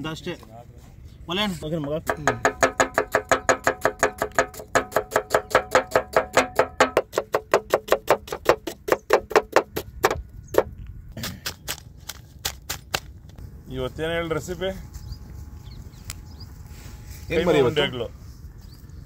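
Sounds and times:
cleaver chopping on wooden block: 2.0s - 13.1s.

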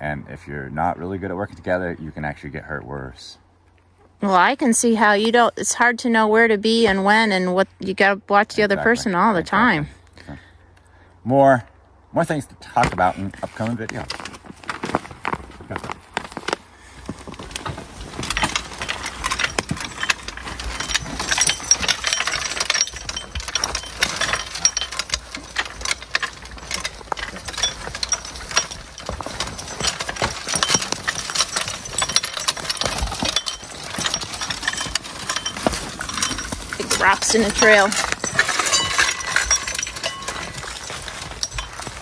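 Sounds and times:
chains and metal hardware rattling: 8.6s - 10.1s, 16.4s - 42.0s
irregular knocks of cart: 12.8s - 42.0s.

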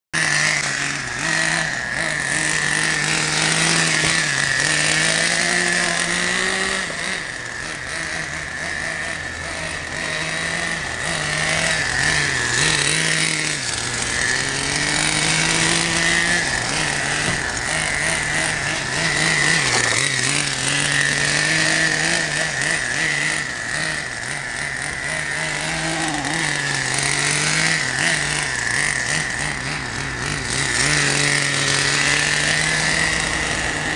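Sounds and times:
steady high whine: 0.2s - 33.9s
toy truck motor drone: 0.2s - 33.9s.

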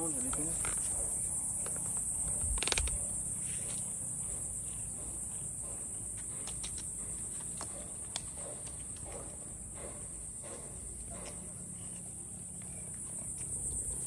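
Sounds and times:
insects shrilling: 0.0s - 7.1s.

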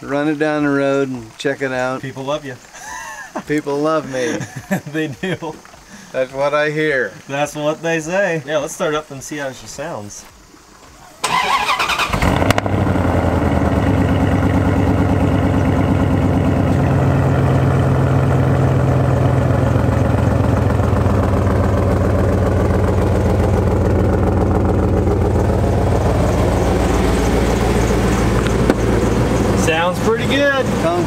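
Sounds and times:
truck engine idling: 11.0s - 31.0s.

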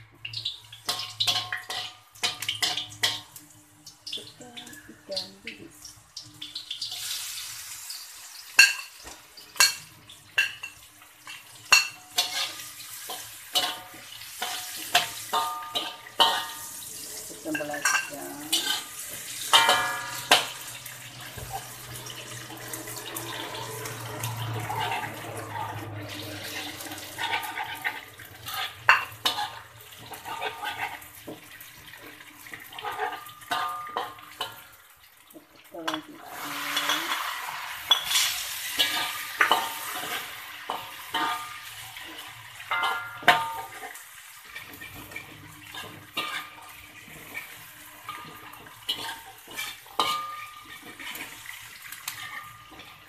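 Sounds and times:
food sizzling in hot oil: 0.0s - 53.0s
metal fork scraping a wok: 11.2s - 16.8s, 17.5s - 31.1s, 35.9s - 41.7s, 44.5s - 53.0s.

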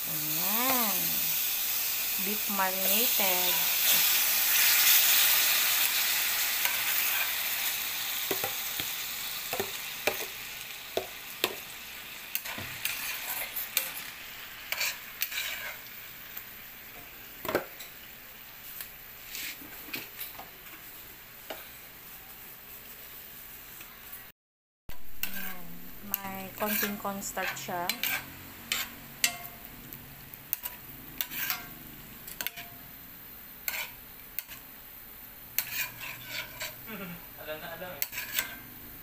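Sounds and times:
meat sizzling in a skillet: 0.0s - 24.3s, 24.9s - 39.0s
metal spoon scraping a pan: 2.2s - 10.4s, 11.0s - 16.0s, 25.1s - 29.6s, 30.5s - 32.8s, 33.6s - 34.7s, 35.6s - 36.9s, 37.9s - 38.7s.

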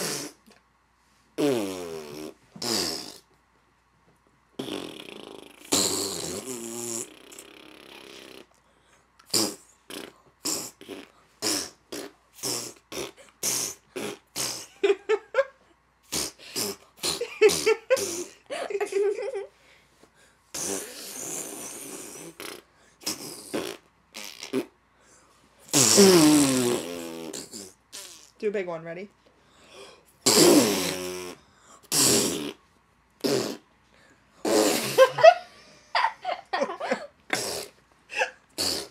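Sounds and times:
imitation fart noises: 0.0s - 0.5s, 1.4s - 3.4s, 4.6s - 8.6s, 9.2s - 15.0s, 16.0s - 18.4s, 20.5s - 24.8s, 25.7s - 28.4s, 30.2s - 33.7s, 34.4s - 35.3s, 37.3s - 37.8s, 38.5s - 38.9s.

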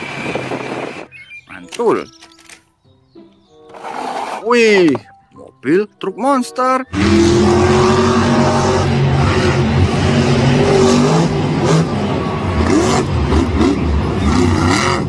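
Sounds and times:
monster truck engine revving: 6.9s - 15.0s.

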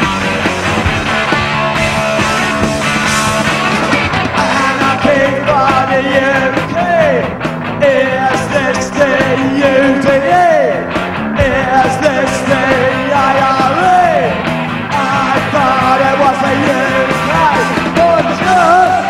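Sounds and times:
bass guitar: 0.0s - 19.0s
drums: 0.0s - 19.0s
electric guitar: 0.0s - 19.0s
person singing lead vocal: 4.3s - 19.0s.

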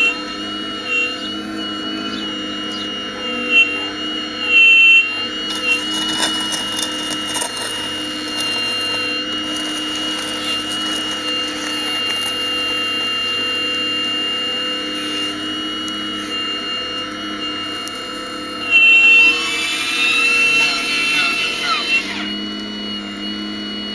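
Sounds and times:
toy excavator motor whine: 0.0s - 23.9s
soil scraping against bucket: 5.4s - 13.6s.

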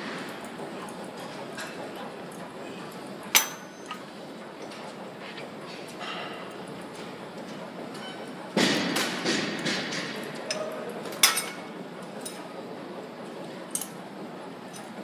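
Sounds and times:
gym equipment metal clanks: 3.2s - 7.0s, 7.9s - 12.4s.

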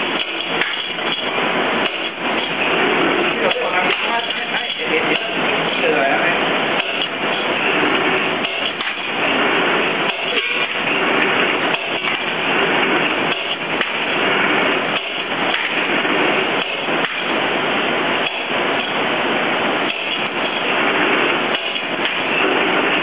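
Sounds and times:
metal rods rattling through rollers: 0.0s - 23.0s.

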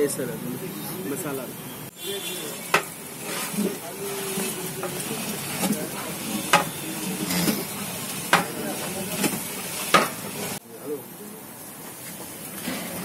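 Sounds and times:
steady sizzle: 1.2s - 13.0s.

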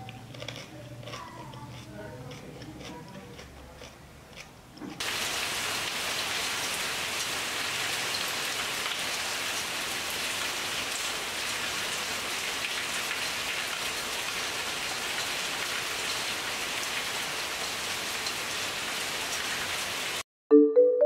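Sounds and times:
steady rain falling: 5.0s - 20.2s.

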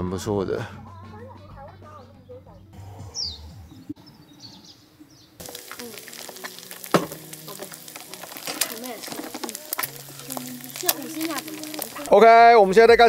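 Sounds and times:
egg sizzling in oil: 5.4s - 12.3s.

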